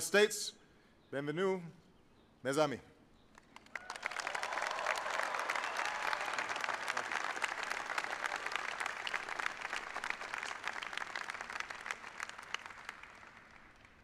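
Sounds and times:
crowd applauding: 0:03.4 - 0:14.0.

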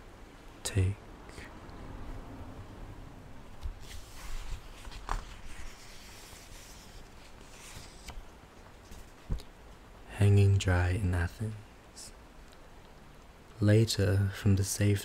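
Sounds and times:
book pages rustling: 0:03.5 - 0:09.5.

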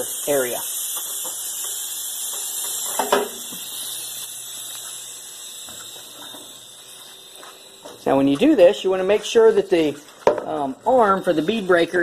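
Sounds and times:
air hissing out of tire valve: 0:00.0 - 0:08.3.

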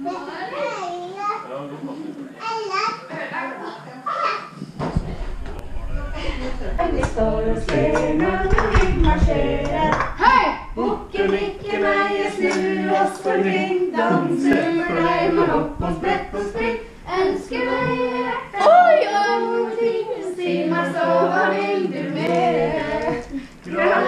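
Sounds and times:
women and children singing: 0:05.8 - 0:24.0.

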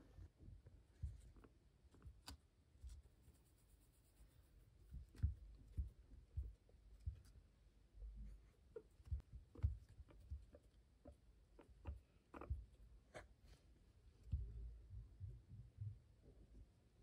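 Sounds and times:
guinea pig nibbling wood: 0:01.0 - 0:13.4
guinea pig scratching and clicking: 0:01.1 - 0:07.4, 0:08.3 - 0:13.2.

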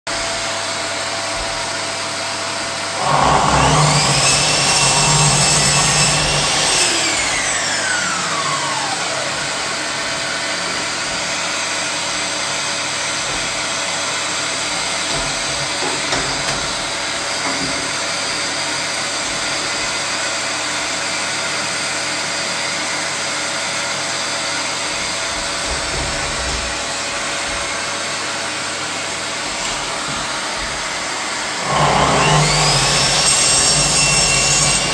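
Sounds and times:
dust extractor running: 0:00.1 - 0:11.8, 0:25.9 - 0:34.9
mitre saw motor whine: 0:02.9 - 0:10.4, 0:31.2 - 0:34.9.

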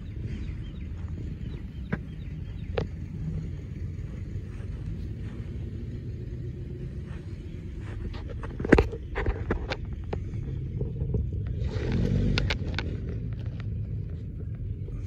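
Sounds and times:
tractor diesel engine idling: 0:00.0 - 0:11.8, 0:12.6 - 0:15.0.

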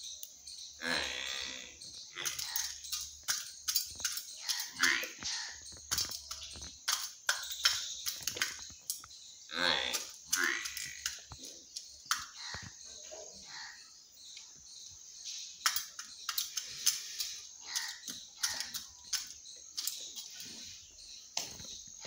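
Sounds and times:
beak pecking metal tin: 0:01.8 - 0:09.2, 0:15.6 - 0:20.6.

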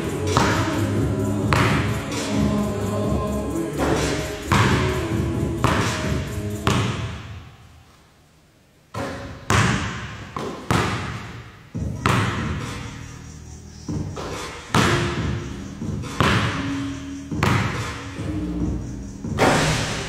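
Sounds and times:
basketball bouncing in gym: 0:04.5 - 0:07.4, 0:08.9 - 0:12.8, 0:13.9 - 0:16.6, 0:17.3 - 0:17.9.

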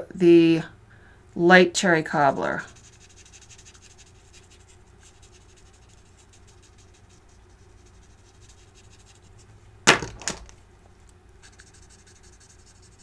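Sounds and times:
marker tip scratching on card: 0:02.6 - 0:09.5, 0:11.4 - 0:13.0.

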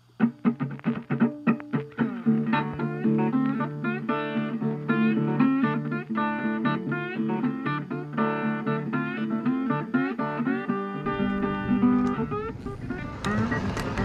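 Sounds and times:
plucked guitar music: 0:00.0 - 0:14.0
low accompaniment: 0:10.5 - 0:14.0.

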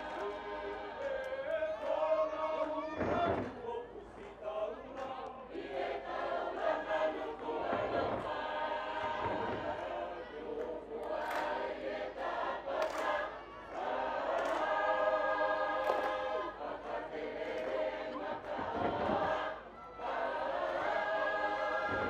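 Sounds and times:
group singing in parts: 0:00.0 - 0:22.0
sharp hand claps: 0:10.6 - 0:16.4, 0:17.4 - 0:19.4.

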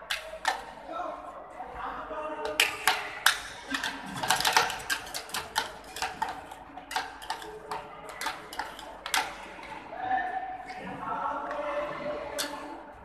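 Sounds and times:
metal spatulas tapping on steel: 0:04.4 - 0:09.3.

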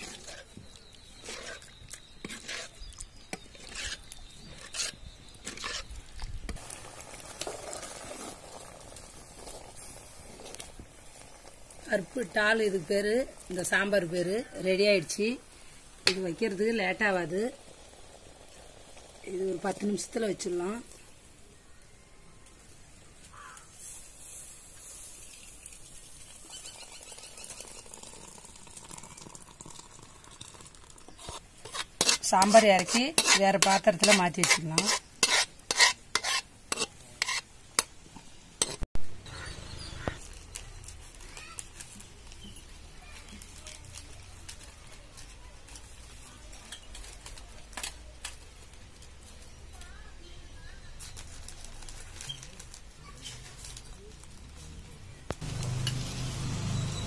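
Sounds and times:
ladle scraping metal pot: 0:00.0 - 0:09.6, 0:30.4 - 0:37.9, 0:38.6 - 0:38.8
dal simmering: 0:00.0 - 0:21.9, 0:22.5 - 0:44.6, 0:55.2 - 0:57.0
thick liquid pouring into bowl: 0:27.5 - 0:31.1.

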